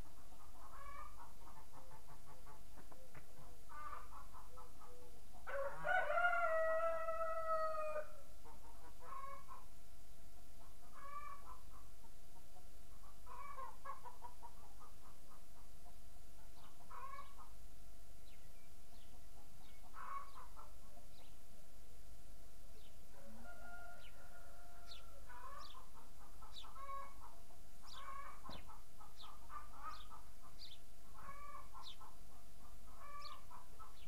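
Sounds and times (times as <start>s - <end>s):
rooster crowing: 5.5s - 8.2s, 23.1s - 25.2s
small birds chirping: 8.4s - 17.6s, 18.2s - 21.6s, 22.7s - 23.1s, 24.0s - 34.0s
distant fowl calling: 19.7s - 20.8s, 27.9s - 32.1s, 33.0s - 34.0s.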